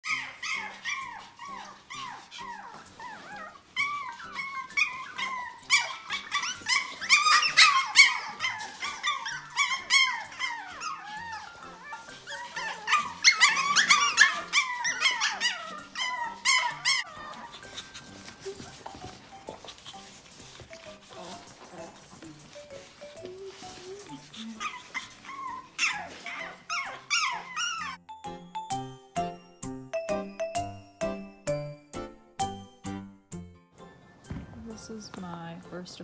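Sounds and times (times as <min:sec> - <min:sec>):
puppies yipping and whining: 0:00.0 - 0:28.1.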